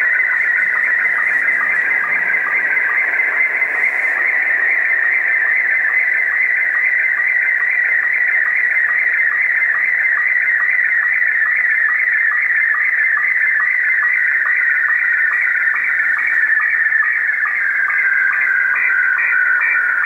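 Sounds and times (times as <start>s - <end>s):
radio hiss: 0.0s - 9.6s
warbling radio signal tone: 0.0s - 10.5s.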